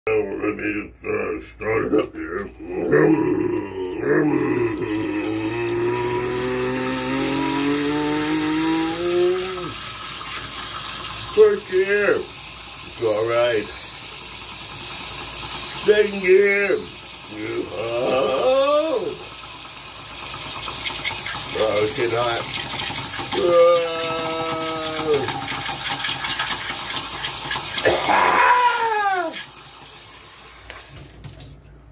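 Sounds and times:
person imitating engine noises: 2.2s - 9.8s, 15.9s - 19.5s, 20.8s - 29.5s
shower spray pattering: 4.3s - 31.7s
tap water running into glass: 4.4s - 28.1s.

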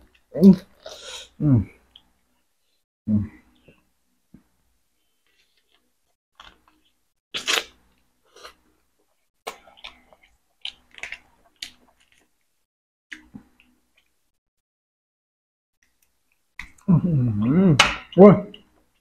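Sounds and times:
chewing chicken: 9.5s - 12.5s.

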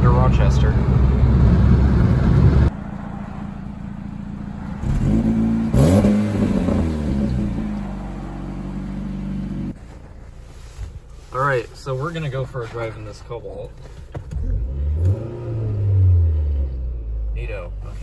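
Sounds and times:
car exhaust idling and revving: 0.0s - 11.3s
road and engine noise in car: 0.0s - 18.0s.

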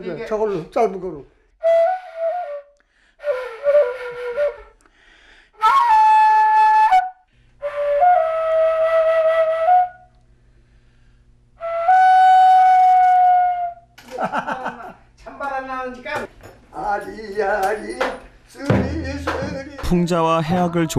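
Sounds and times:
bamboo flute long held notes: 1.6s - 4.8s, 5.6s - 10.2s, 11.6s - 13.9s.

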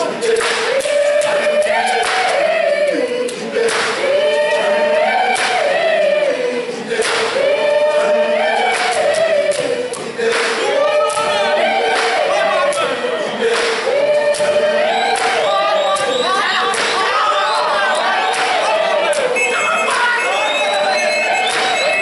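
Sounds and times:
group singing in chorus: 0.0s - 22.0s
sharp percussive hits: 18.3s - 22.0s.

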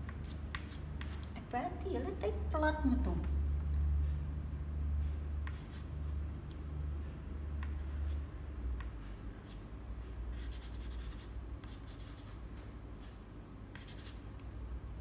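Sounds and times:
low steady hum: 0.0s - 15.0s
pastel scratching on paper: 10.3s - 12.4s, 13.8s - 14.2s.

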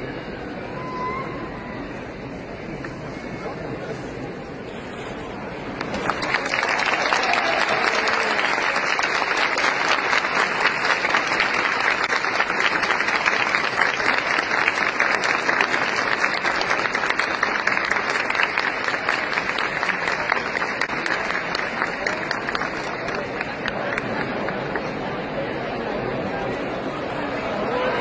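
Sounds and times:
crowd applauding: 5.8s - 25.2s.

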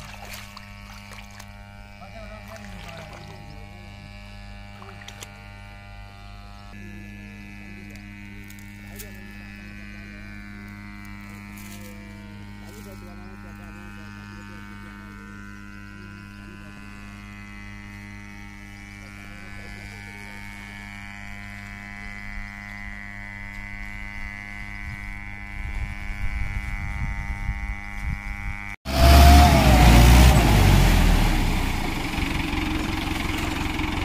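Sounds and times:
rough engine running close by: 28.9s - 34.0s
tractor engine idling: 28.9s - 34.0s.

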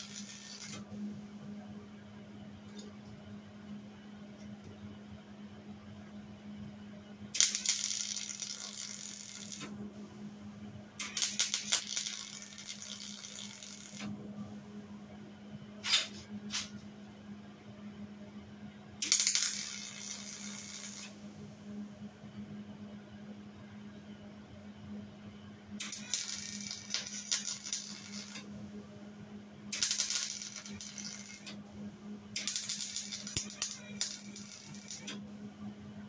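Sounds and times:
arc welder crackling on steel: 0.0s - 0.8s, 7.4s - 9.7s, 11.0s - 14.1s, 19.0s - 21.2s, 25.8s - 28.5s, 29.7s - 31.6s, 32.4s - 35.2s
steady low hum: 0.0s - 36.0s.

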